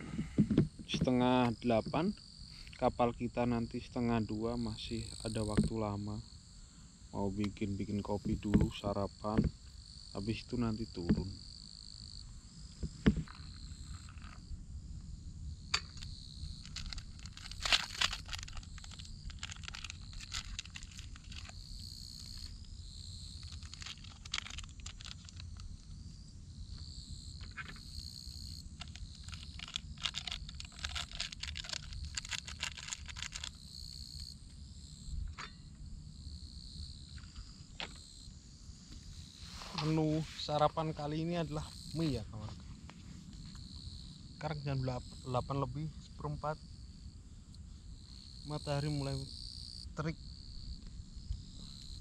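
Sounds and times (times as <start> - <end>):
insects chirping: 0.0 - 52.0
steady low rumble: 12.2 - 23.7
food packaging rustling: 16.7 - 21.6, 23.4 - 25.6, 28.8 - 33.6.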